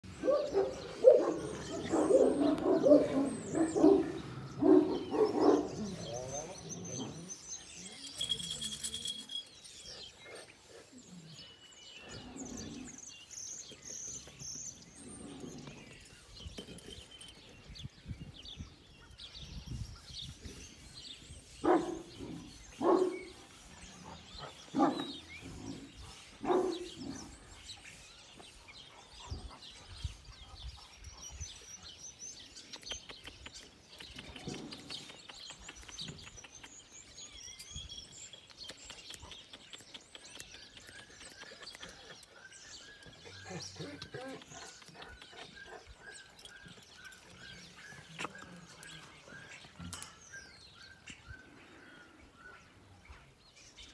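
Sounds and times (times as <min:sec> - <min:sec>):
small birds chirping: 0:00.0 - 0:53.9
dog barking deeply: 0:00.2 - 0:05.8.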